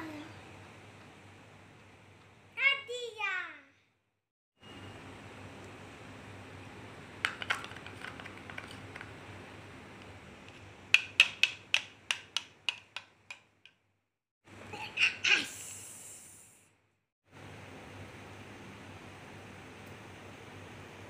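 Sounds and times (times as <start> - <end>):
plastic spoon stirring in cup: 7.3 - 9.2.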